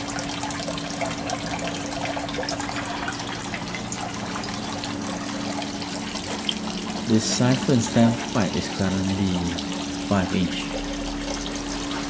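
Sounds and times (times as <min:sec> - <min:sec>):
steady low hum: 0:00.0 - 0:12.0
water running and trickling: 0:00.0 - 0:12.0.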